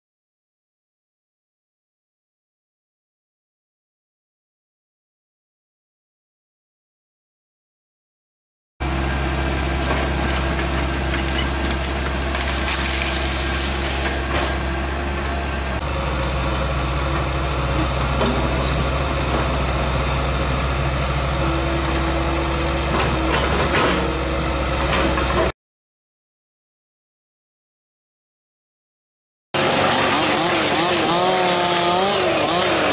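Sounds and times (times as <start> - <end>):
blade pushing dirt: 8.8 - 20.3, 29.6 - 32.9
bulldozer diesel engine running: 8.8 - 25.5, 29.6 - 32.9.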